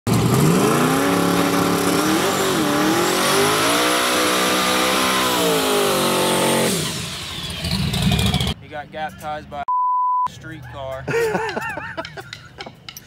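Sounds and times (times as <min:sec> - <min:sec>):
engine revving high: 0:00.1 - 0:08.6.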